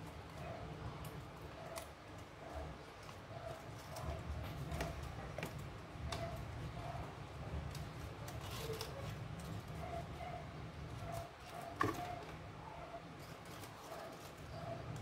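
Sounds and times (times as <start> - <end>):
folded paper rustling and clicking: 7.5 - 10.1, 13.1 - 15.0.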